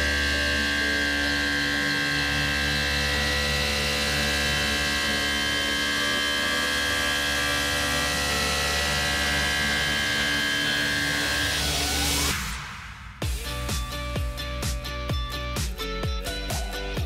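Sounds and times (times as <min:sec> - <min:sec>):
milling machine cutting metal: 0:00.0 - 0:12.3.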